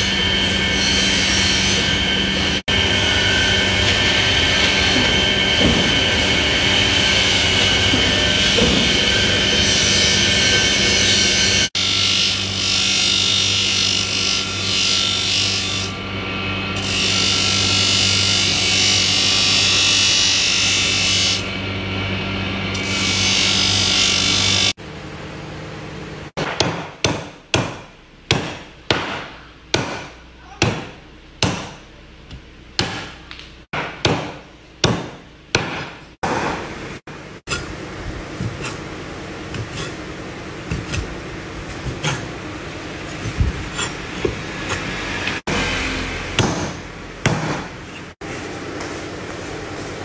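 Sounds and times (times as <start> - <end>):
cleaver chopping on board: 26.4 - 31.8, 33.8 - 36.6.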